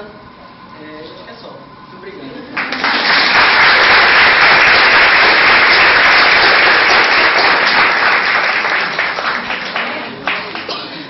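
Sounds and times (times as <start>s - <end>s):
crowd applause: 2.6s - 10.8s.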